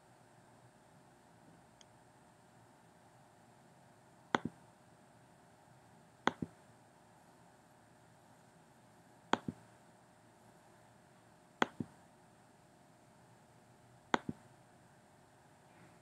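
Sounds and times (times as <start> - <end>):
computer mouse button clicks: 6.3 - 6.5, 9.4 - 9.6, 11.6 - 11.9, 14.1 - 14.4.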